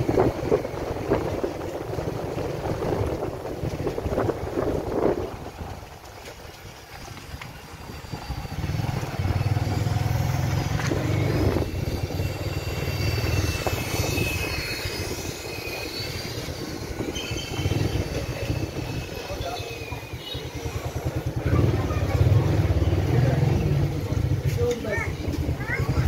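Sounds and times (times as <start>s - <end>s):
motorcycle engine running: 7.9s - 13.8s, 20.2s - 24.5s.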